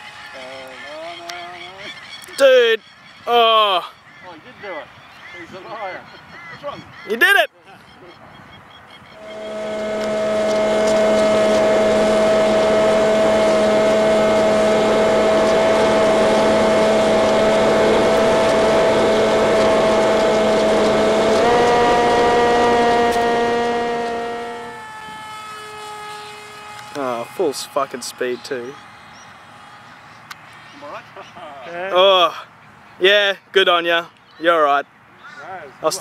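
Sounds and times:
electric motor propeller whine: 0:00.0 - 0:02.2, 0:09.0 - 0:30.8.

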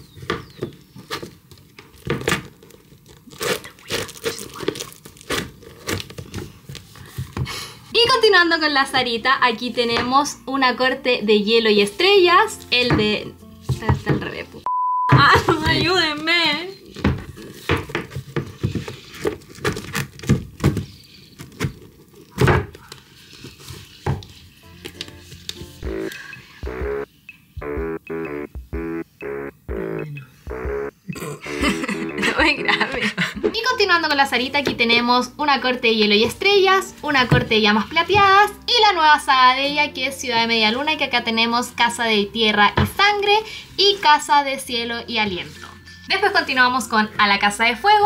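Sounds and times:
books knocking on a shelf: 0:12.8 - 0:14.4
books rustling and scraping on shelf: 0:12.8 - 0:14.4, 0:15.4 - 0:25.8.

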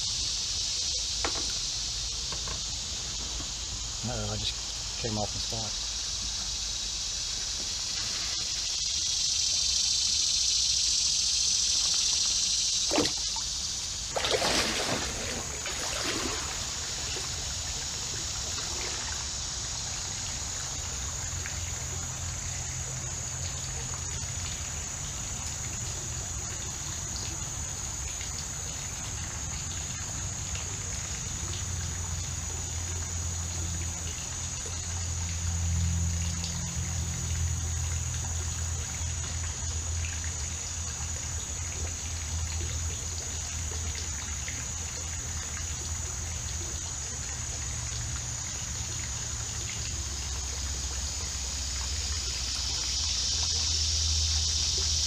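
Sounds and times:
steady high hiss: 0:00.0 - 0:36.8, 0:39.7 - 0:55.0
creek water trickling: 0:00.0 - 0:55.0
water splash: 0:12.8 - 0:19.3.

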